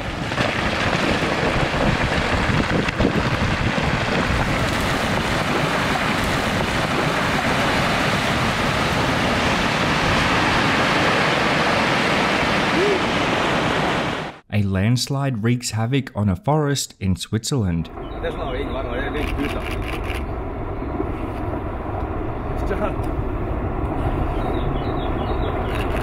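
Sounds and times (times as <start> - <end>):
rockfall rumbling: 0.0 - 14.2.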